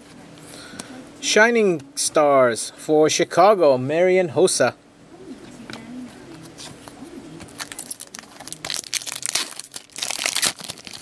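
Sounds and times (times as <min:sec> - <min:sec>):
foil wrapper crinkling: 0:07.5 - 0:11.0
foil wrapper tearing: 0:07.5 - 0:11.0.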